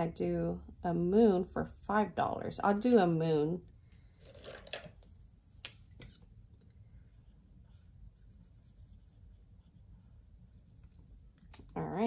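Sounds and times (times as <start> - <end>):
marker pen coloring on paper: 7.6 - 12.0.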